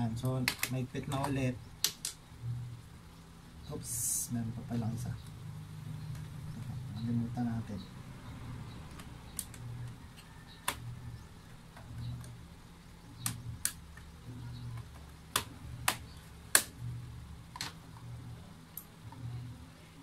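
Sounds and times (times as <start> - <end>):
plastic clips snapping into place: 13.2 - 14.1, 15.3 - 16.8.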